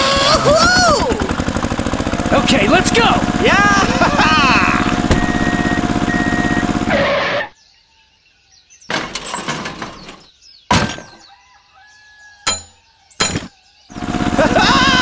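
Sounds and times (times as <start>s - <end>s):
small motor buzzing: 0.0s - 7.1s.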